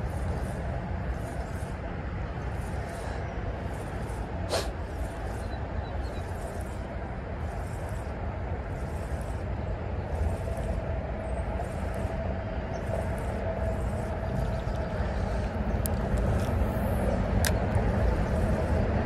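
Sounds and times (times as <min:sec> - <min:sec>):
highway traffic rumble: 0:00.0 - 0:19.0.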